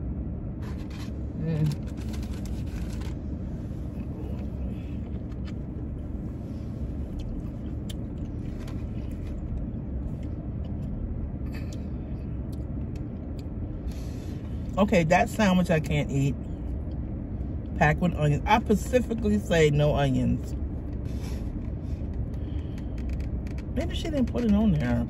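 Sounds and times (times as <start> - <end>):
car engine idling: 0.0 - 25.0
faint clicks and rustles: 20.8 - 25.0.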